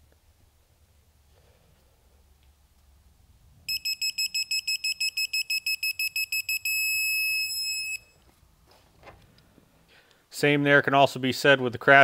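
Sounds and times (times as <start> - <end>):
rapid high electronic beeps: 3.7 - 8.1.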